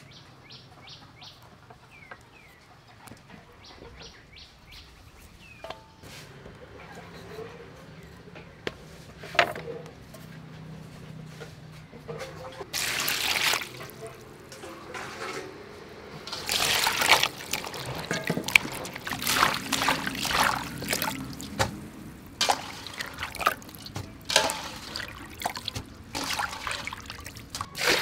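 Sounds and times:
water splashing and trickling: 0:12.6 - 0:15.3, 0:16.2 - 0:28.0
hands rubbing vegetables in water: 0:12.7 - 0:14.3, 0:16.3 - 0:28.0.

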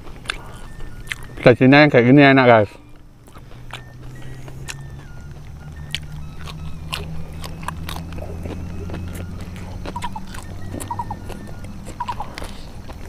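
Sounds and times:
person chewing raw leaves: 0:00.0 - 0:01.7, 0:02.6 - 0:13.0
steady low hum: 0:00.0 - 0:13.0.

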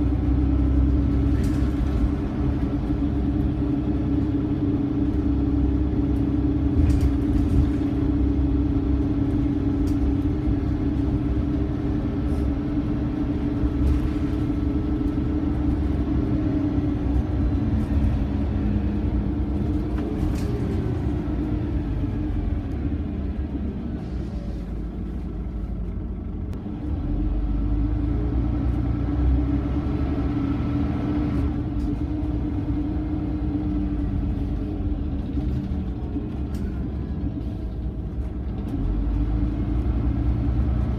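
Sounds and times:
bus diesel engine drone: 0:00.0 - 0:40.9
road rumble: 0:00.0 - 0:40.9.

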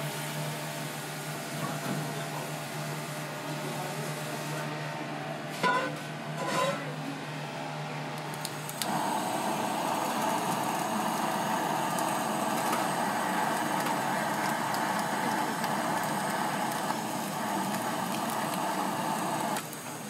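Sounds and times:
blowtorch hissing: 0:08.4 - 0:20.0.

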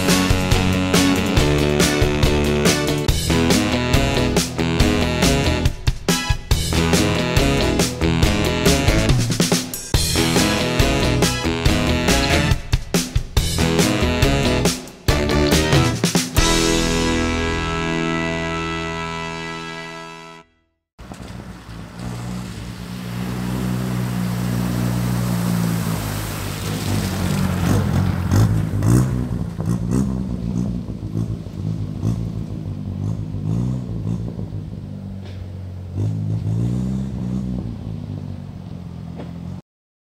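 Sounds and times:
small car engine revving: 0:21.0 - 0:39.6.

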